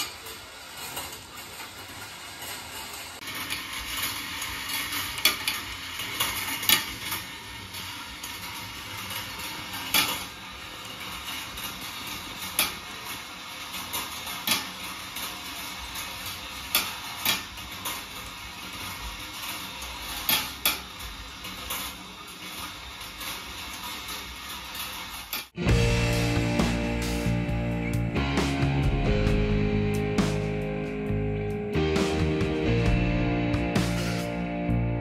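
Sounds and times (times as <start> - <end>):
marbles rattling on wire track: 0.0 - 25.6.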